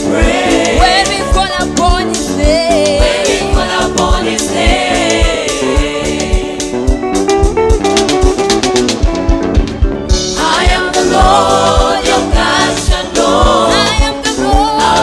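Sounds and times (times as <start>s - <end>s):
backing singers: 0.0s - 1.6s, 2.5s - 6.9s, 10.4s - 15.0s
bass guitar: 0.0s - 15.0s
drum kit beat: 0.0s - 15.0s
woman singing lead: 0.6s - 6.7s, 10.4s - 15.0s.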